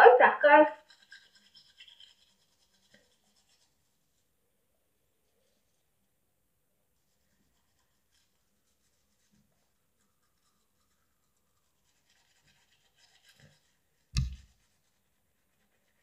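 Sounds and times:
toothbrush scrubbing teeth: 0:00.7 - 0:04.3, 0:07.0 - 0:16.0
sharp thump: 0:14.2 - 0:14.5.

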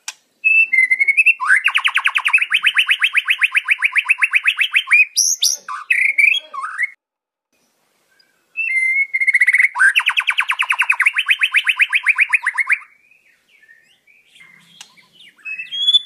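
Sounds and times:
bird singing fast trill: 0:00.4 - 0:07.0, 0:08.2 - 0:16.0
bird whistled phrases: 0:00.4 - 0:07.0, 0:08.6 - 0:16.0.

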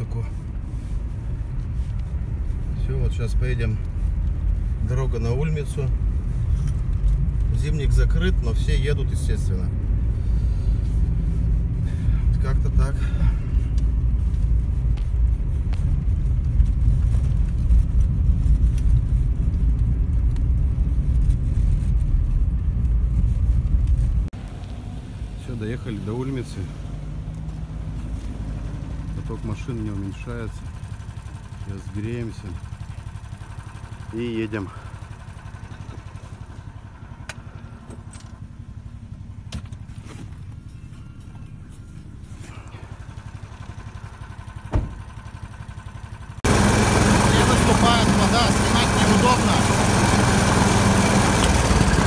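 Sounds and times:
car engine and tyre rumble: 0:00.0 - 0:52.0.

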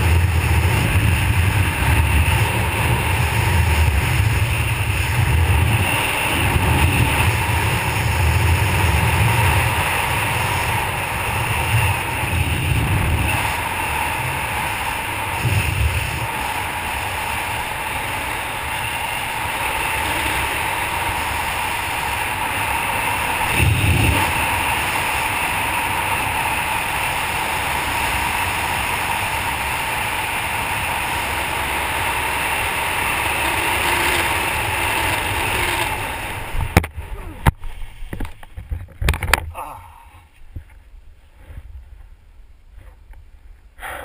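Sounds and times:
wind rushing over microphone: 0:00.0 - 0:39.6
low wind buffeting: 0:00.0 - 0:43.8.

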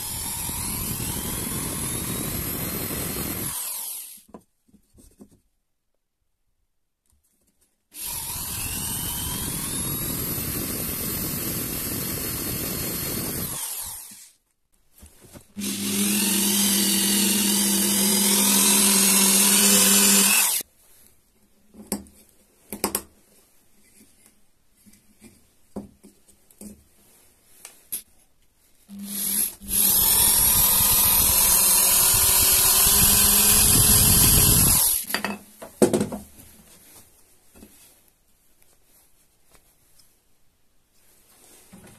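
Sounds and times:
power drill boring into wood: 0:00.0 - 0:04.3, 0:08.0 - 0:14.4, 0:15.6 - 0:20.6, 0:28.9 - 0:35.2.

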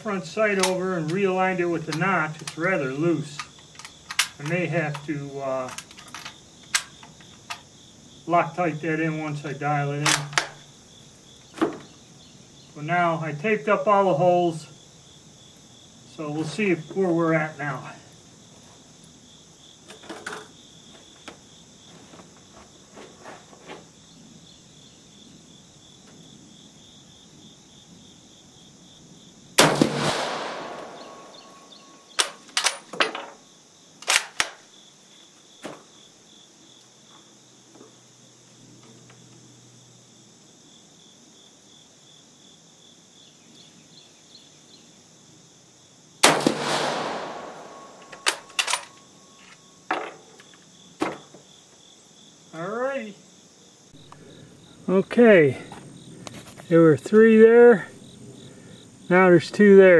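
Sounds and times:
crickets chirping: 0:00.0 - 0:59.9
rifle shots: 0:29.6 - 0:32.3, 0:46.2 - 0:48.7
rifle bolt clicks: 0:34.0 - 0:34.6.

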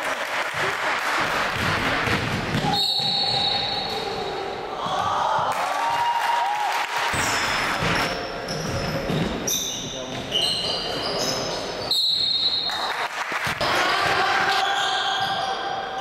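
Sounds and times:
basketball bouncing: 0:01.4 - 0:03.6, 0:07.1 - 0:09.4
sneakers squeaking on hardwood: 0:02.6 - 0:04.1, 0:07.2 - 0:12.7, 0:14.4 - 0:15.7.

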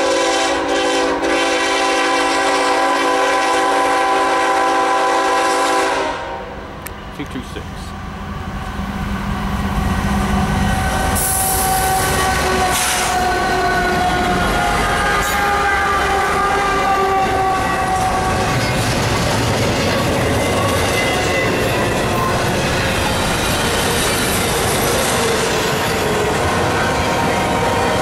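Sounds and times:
diesel locomotive engines: 0:00.0 - 0:28.0
wheel-on-rail noise: 0:08.3 - 0:28.0.

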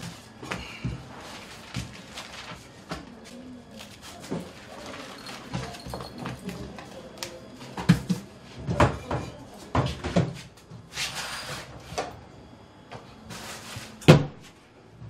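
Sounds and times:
rustling: 0:01.1 - 0:06.3.

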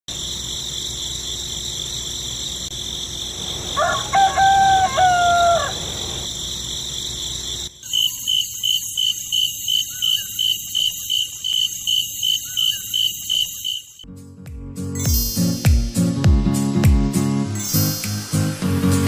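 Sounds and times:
rooster crowing: 0:03.6 - 0:06.3
high pulsing chirp: 0:05.8 - 0:14.0, 0:15.0 - 0:15.9, 0:17.5 - 0:18.5.

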